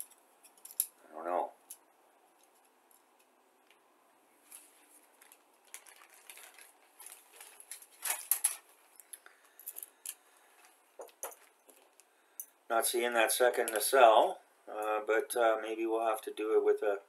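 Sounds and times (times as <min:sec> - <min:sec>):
plastic bag crinkling: 0:04.4 - 0:12.0.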